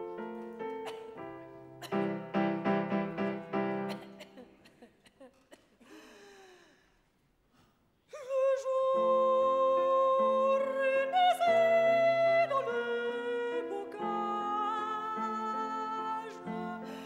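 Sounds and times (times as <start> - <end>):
piano chords: 0.0 - 4.2
operatic soprano singing: 8.1 - 17.0.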